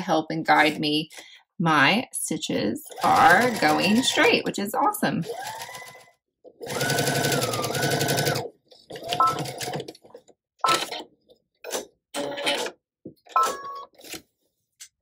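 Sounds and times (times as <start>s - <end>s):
sewing machine stitching: 2.9s - 4.4s, 5.2s - 10.0s.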